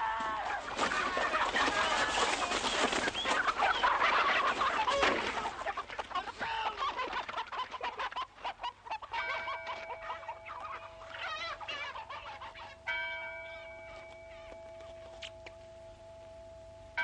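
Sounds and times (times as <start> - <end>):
chickens squawking and clucking: 0.0 - 15.2
wings flapping: 0.2 - 8.2.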